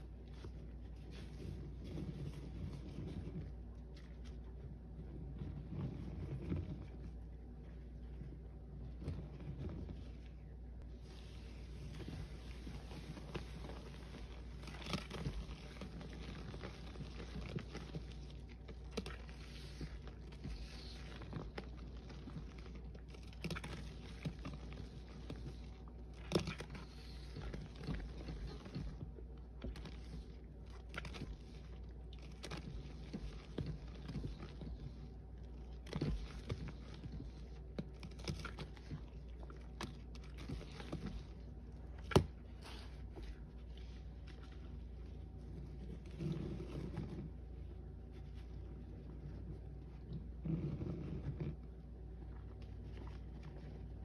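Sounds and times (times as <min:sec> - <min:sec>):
small clicks and crackles: 0:11.8 - 0:54.0.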